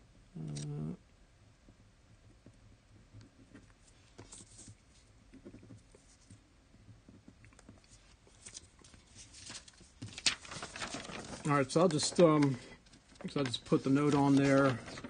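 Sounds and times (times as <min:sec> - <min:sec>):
faint rustling: 0:07.1 - 0:15.0.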